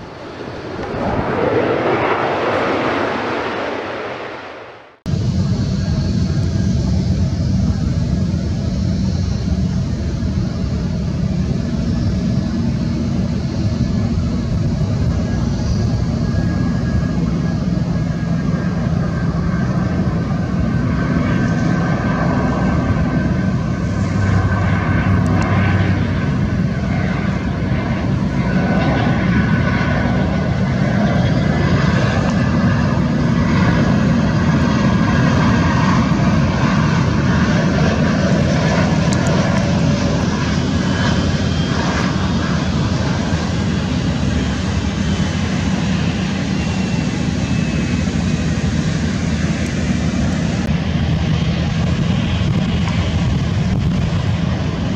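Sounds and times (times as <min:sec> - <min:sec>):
high thin jet whine: 0:00.0 - 0:06.4
jet engines roaring: 0:00.0 - 0:54.9.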